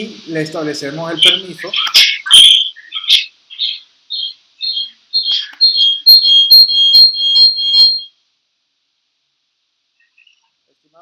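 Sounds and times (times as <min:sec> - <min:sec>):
high-pitched chirps: 0:01.3 - 0:08.2.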